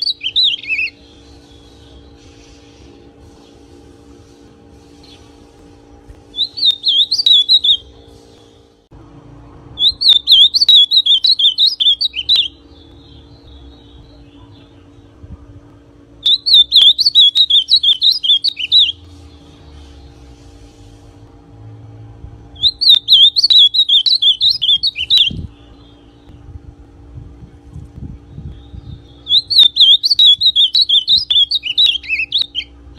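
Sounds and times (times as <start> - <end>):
bird warbling song: 0.0 - 3.6, 6.2 - 8.7, 9.8 - 15.3, 16.2 - 20.4, 22.6 - 26.5, 28.2 - 32.8
faint low hum: 0.0 - 32.9.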